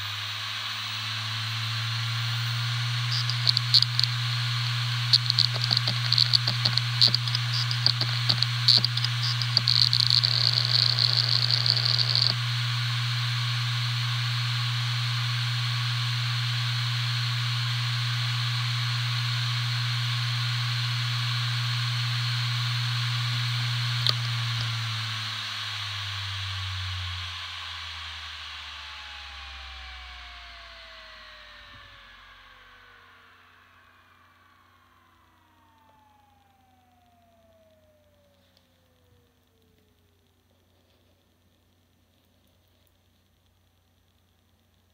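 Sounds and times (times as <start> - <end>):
hard drive humming and whining: 0.0 - 44.9
hard drive clicking: 2.8 - 12.4, 23.8 - 24.9.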